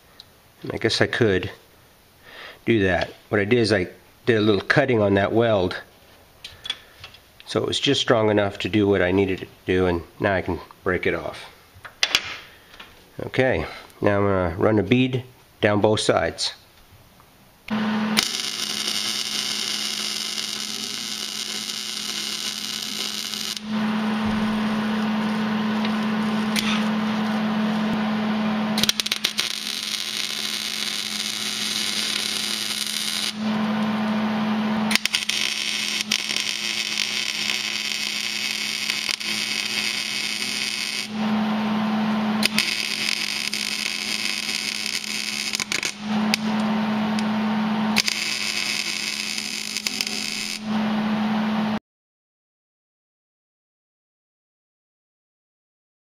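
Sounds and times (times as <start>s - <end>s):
welder low hum: 17.7s - 51.8s
arc welding crackling hiss: 18.2s - 28.0s, 28.8s - 33.5s, 34.8s - 41.2s, 42.4s - 46.6s, 47.9s - 50.7s.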